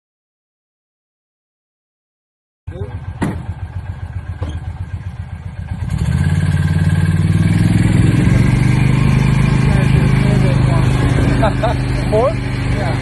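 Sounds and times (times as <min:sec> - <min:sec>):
vehicle engine running: 0:02.7 - 0:13.0.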